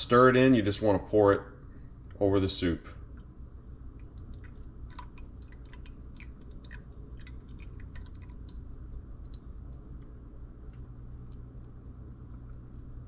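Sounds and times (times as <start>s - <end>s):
low steady hum: 0.0s - 13.0s
soup ticking and popping: 3.2s - 12.6s.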